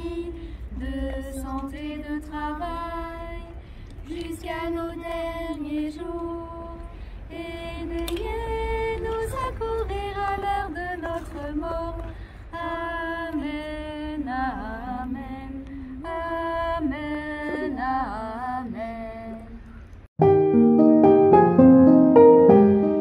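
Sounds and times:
voices singing a hymn: 0.0s - 19.7s
piano music: 20.2s - 23.0s.

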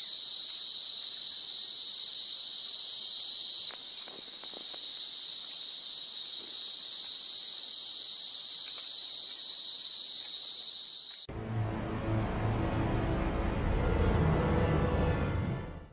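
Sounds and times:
high-pitched insect chorus: 0.0s - 11.3s
dramatic music: 11.3s - 15.9s.

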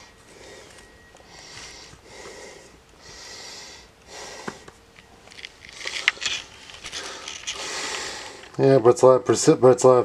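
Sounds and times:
person breathing close: 0.0s - 4.8s, 5.7s - 8.6s
handling rustling and clicks: 4.6s - 8.6s.

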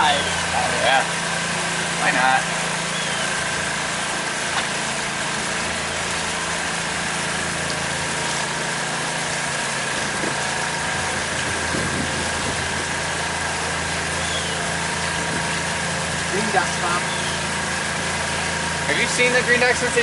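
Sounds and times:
boat motor running: 0.0s - 20.0s.

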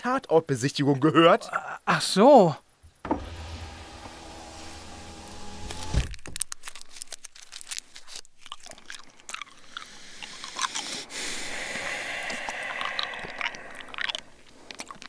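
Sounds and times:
plastic wrapper crinkling and tearing: 6.0s - 9.8s
chewing: 6.4s - 15.0s.

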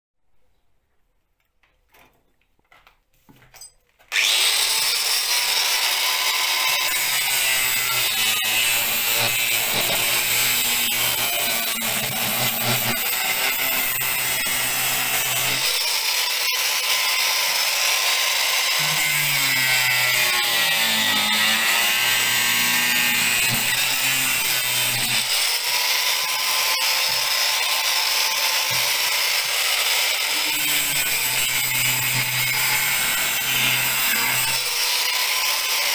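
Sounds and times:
angle grinder cutting plastic: 4.1s - 35.9s.

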